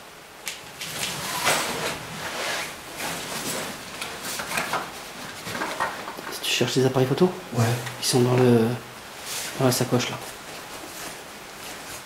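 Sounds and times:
clothing and gear rustling: 0.8 - 6.2, 9.1 - 12.0.

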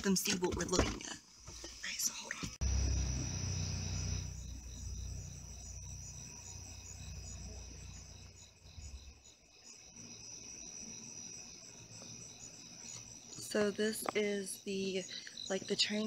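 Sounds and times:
crickets chirping: 1.8 - 16.0
low rumble: 2.6 - 9.2.

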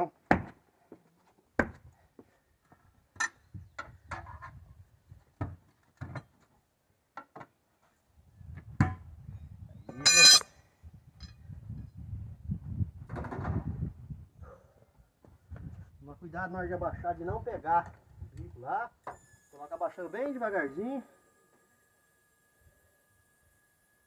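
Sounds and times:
tools knocking and clinking: 10.0 - 10.4.

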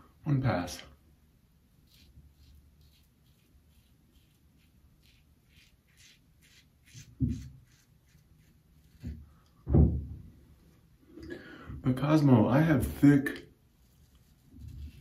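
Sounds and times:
razor scraping through hair: 1.8 - 9.2
dull thumps: 9.0 - 10.3.

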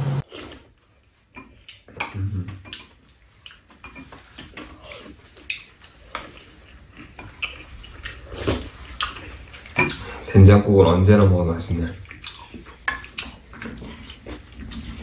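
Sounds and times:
utensils clinking against bowls: 3.8 - 5.0.

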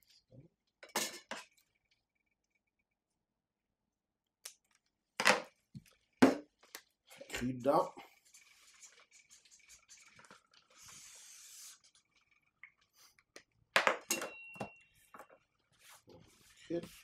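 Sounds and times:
marker scratching on paper: 8.2 - 11.9.

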